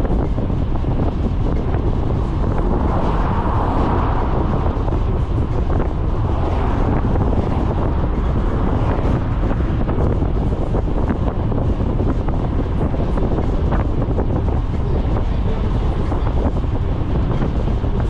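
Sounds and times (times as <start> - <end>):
van driving rumble: 0.0 - 18.0
wind buffeting microphone: 0.0 - 18.0.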